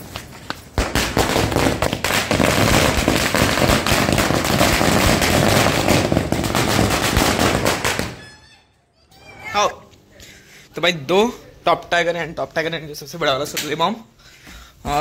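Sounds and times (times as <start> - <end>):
string of firecrackers banging: 0.0 - 8.2.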